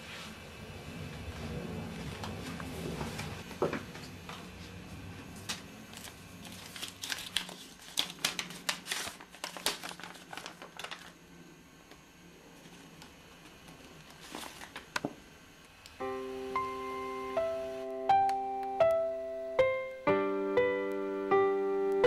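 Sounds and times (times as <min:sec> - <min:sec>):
paper rustling and crinkling: 0:05.3 - 0:11.2, 0:13.8 - 0:15.1.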